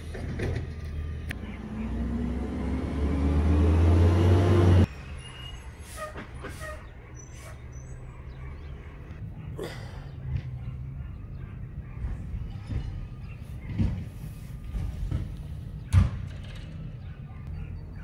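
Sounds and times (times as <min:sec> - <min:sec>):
vehicle engine accelerating: 0:01.1 - 0:05.0.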